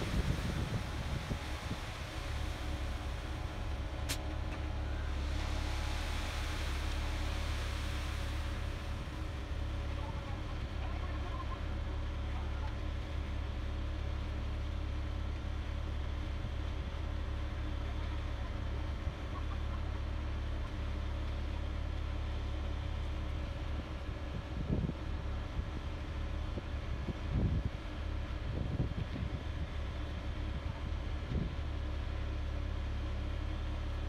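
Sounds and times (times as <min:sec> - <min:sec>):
hiss: 0:00.0 - 0:10.0
diesel engine drone: 0:00.0 - 0:34.0.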